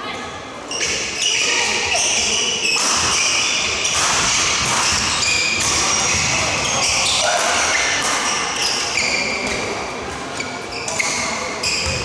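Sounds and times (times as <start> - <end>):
rackets striking shuttlecock: 2.7 - 8.4.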